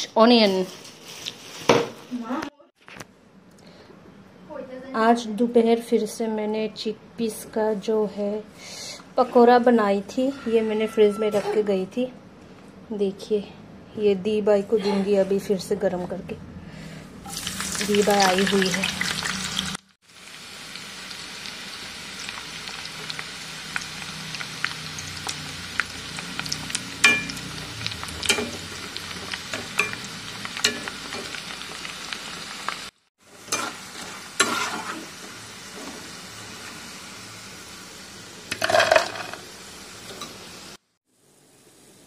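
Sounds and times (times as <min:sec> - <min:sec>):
food sizzling in hot oil: 0:17.2 - 0:42.0
fried food clattering into steel bowl: 0:38.5 - 0:39.4.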